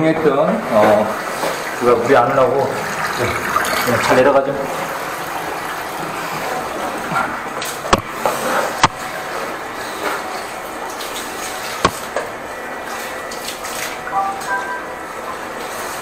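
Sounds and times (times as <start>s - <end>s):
water running down a drain: 0.5s - 8.8s.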